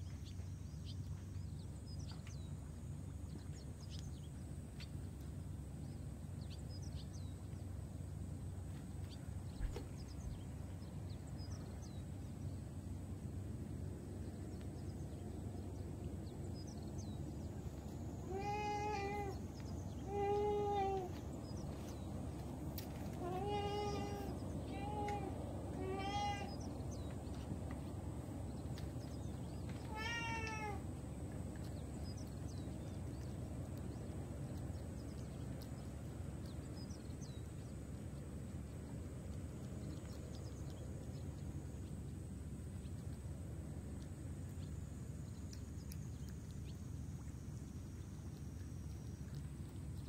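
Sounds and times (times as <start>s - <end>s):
cat meowing: 18.2s - 19.4s, 20.0s - 21.1s, 23.2s - 26.5s, 29.9s - 30.8s.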